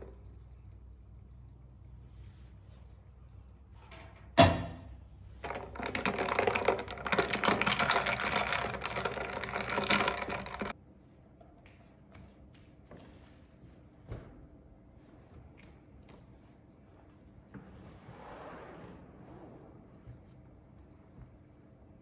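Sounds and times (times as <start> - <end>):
ice and spoon rattling in glass: 5.4 - 10.7.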